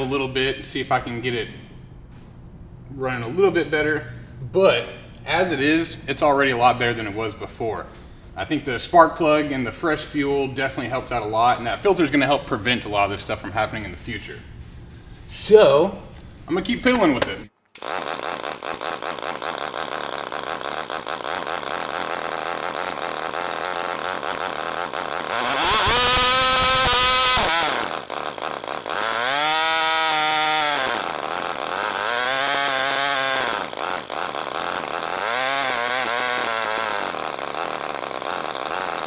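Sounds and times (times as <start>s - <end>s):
lawn mower engine revving: 17.8s - 39.0s.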